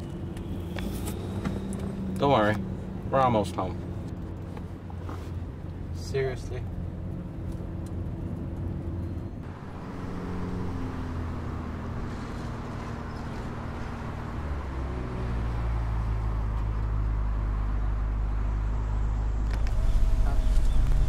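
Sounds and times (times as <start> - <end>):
car engine rumbling: 0.0 - 21.0
road noise: 0.0 - 21.0.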